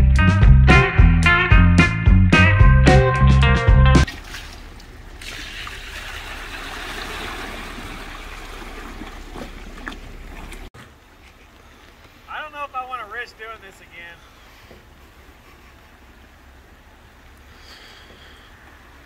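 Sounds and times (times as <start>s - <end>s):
water splashing around boat hull: 4.0s - 12.2s.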